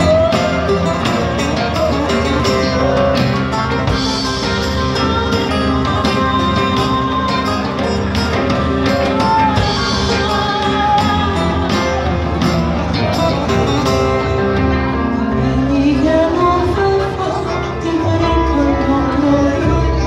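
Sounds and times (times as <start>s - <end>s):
woman singing: 0.0s - 3.1s, 4.7s - 12.5s, 15.2s - 20.0s
electric bass: 0.0s - 20.0s
keyboard: 0.0s - 20.0s
plucked strings: 0.0s - 20.0s.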